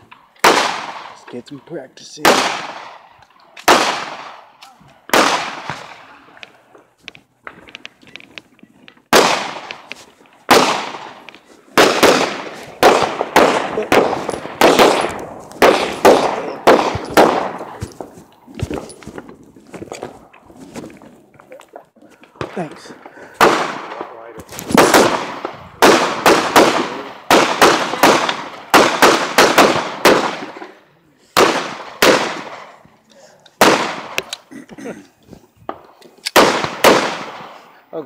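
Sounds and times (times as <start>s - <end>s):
gunshots with echo: 0.4s - 1.3s, 2.2s - 6.3s, 9.1s - 19.2s, 22.4s - 30.6s, 31.4s - 32.8s, 33.6s - 34.2s, 36.4s - 37.7s.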